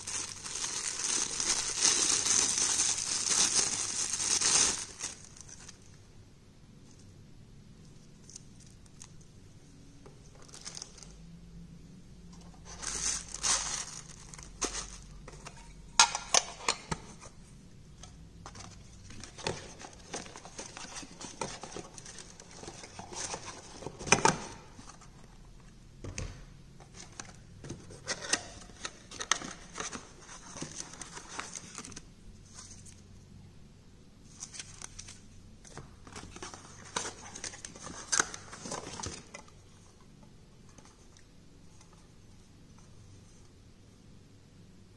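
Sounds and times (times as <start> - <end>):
paper and plastic crinkling: 0.0 - 5.9, 10.2 - 11.2, 12.3 - 15.8, 18.0 - 25.3, 26.8 - 33.0, 34.3 - 39.8.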